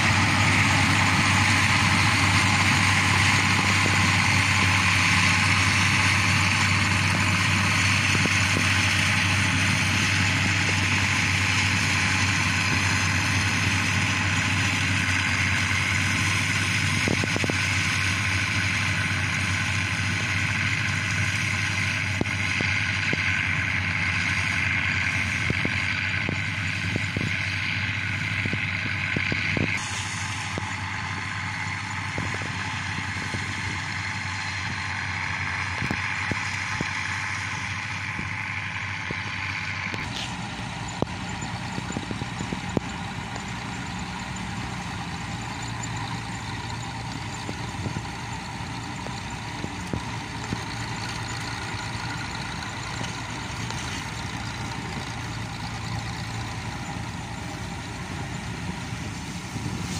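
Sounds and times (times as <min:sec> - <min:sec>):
combine harvester running: 0:00.0 - 0:59.9.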